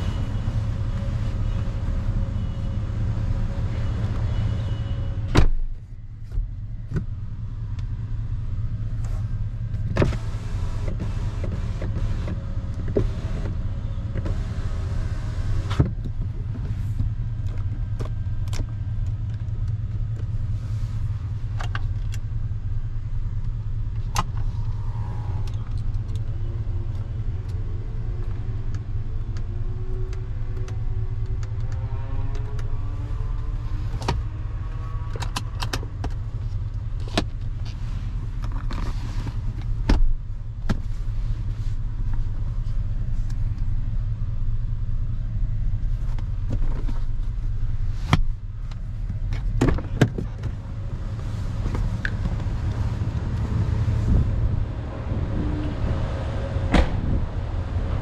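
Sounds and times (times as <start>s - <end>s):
car engine rumbling steadily: 0.0s - 58.0s
loud thump: 56.6s - 57.3s.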